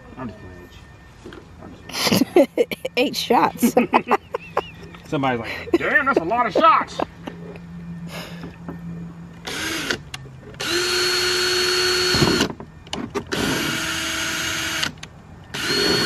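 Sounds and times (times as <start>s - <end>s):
cordless drill whining: 9.4s - 10.0s, 10.6s - 12.6s, 13.3s - 16.0s.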